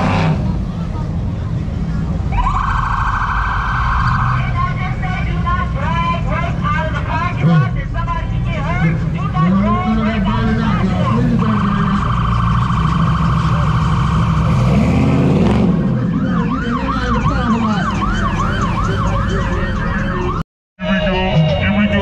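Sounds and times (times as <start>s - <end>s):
electronic siren warbling: 10.5s - 22.0s.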